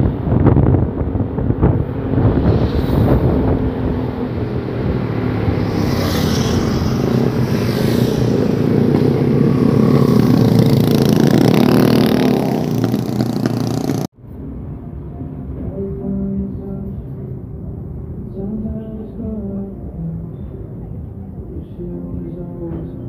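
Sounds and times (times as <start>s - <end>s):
wind rushing over microphone: 0.0s - 15.0s
motorcycle engine running: 0.6s - 14.1s.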